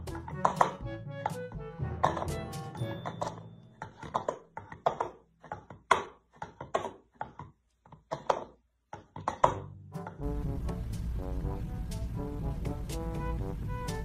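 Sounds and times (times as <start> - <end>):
music: 0.0 - 4.0, 9.4 - 14.0.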